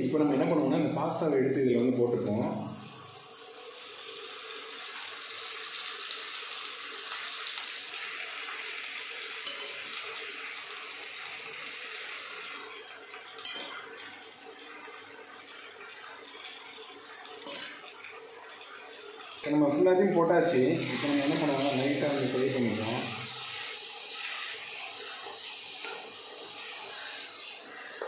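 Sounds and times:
vegetables sizzling in frying pan: 2.4s - 19.5s, 20.5s - 28.0s
spoon clinking against pan: 9.4s - 9.8s, 13.4s - 13.8s.

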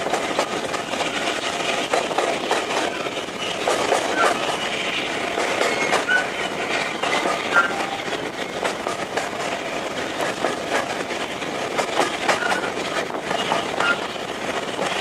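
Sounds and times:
train wheels rumbling and clattering: 0.0s - 15.0s
wheels squeaking: 2.6s - 9.1s, 12.0s - 14.2s.

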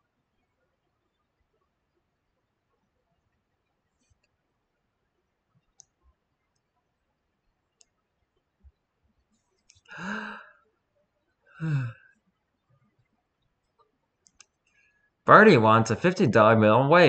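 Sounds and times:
faint clicks: 5.6s - 6.8s, 7.7s - 8.0s, 8.6s - 9.9s, 12.9s - 14.9s
person making wordless sounds: 11.6s - 11.9s, 15.3s - 17.0s.

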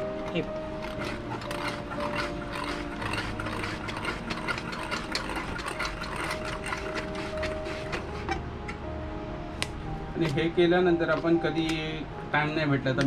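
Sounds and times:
hand-cranked grinder clicking: 0.2s - 8.4s.

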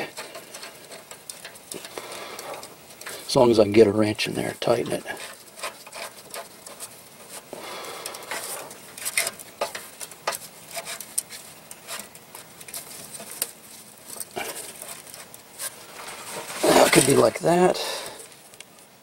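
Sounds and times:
metal clamp scraping on pipe: 4.9s - 7.5s.

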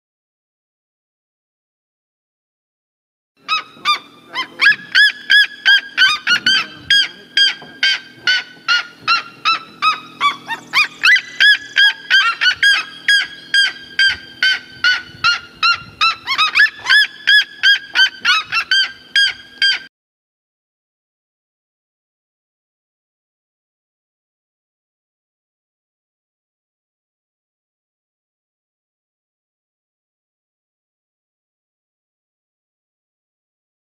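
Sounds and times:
bird yelping calls: 3.4s - 19.9s.

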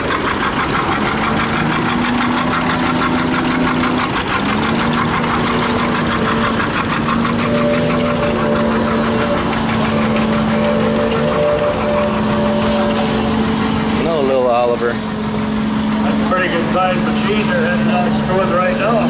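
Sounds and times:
tractor engine idling: 0.0s - 19.0s.

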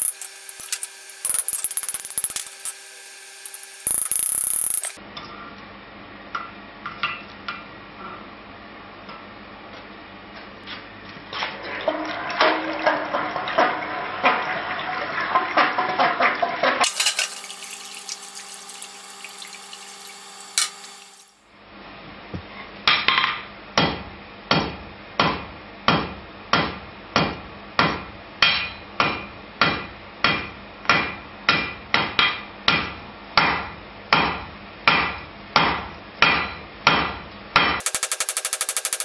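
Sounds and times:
hammer striking steel on anvil: 23.8s - 39.0s.

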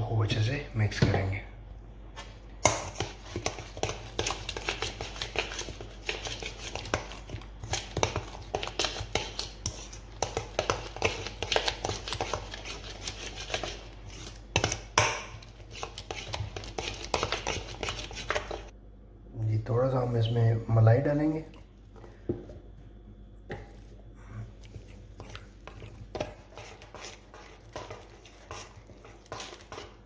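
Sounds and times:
metal spoon stirring in bowl: 2.6s - 18.7s, 24.4s - 30.0s.

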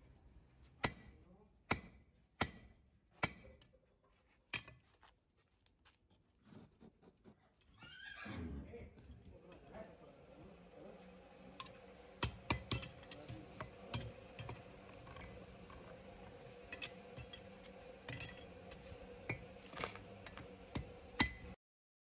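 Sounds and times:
faint steady hum: 8.5s - 21.6s.

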